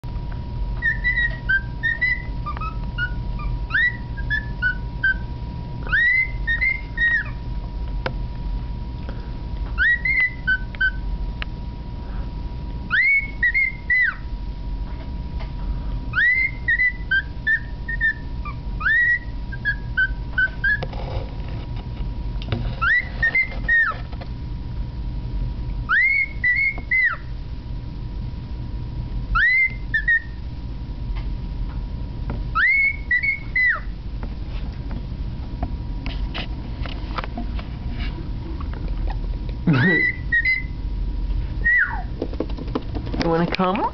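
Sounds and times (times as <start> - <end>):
cockatiel whistling: 0.8 - 7.4, 9.8 - 11.0, 12.9 - 14.3, 16.1 - 20.8, 22.8 - 24.0, 25.9 - 27.3, 29.3 - 30.4, 32.5 - 33.9, 39.7 - 40.8, 41.6 - 42.2.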